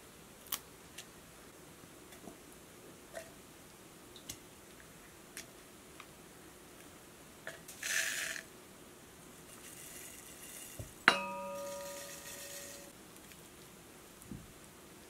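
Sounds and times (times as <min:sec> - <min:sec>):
seasoning shaken from shaker: 0:07.7 - 0:08.5, 0:09.4 - 0:11.0, 0:11.6 - 0:12.9
glass jar clinking: 0:10.8 - 0:12.9.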